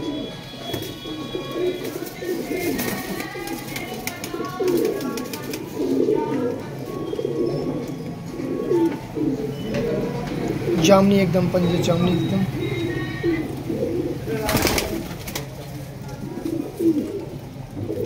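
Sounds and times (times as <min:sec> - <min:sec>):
pigeons cooing: 0:00.0 - 0:11.1, 0:11.7 - 0:18.0.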